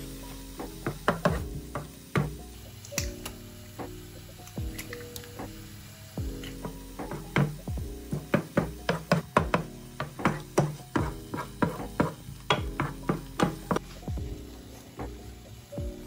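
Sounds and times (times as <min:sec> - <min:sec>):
soft background music: 0:00.0 - 0:16.0
wooden spoon knocking in frying pan: 0:00.8 - 0:02.4, 0:06.6 - 0:13.8.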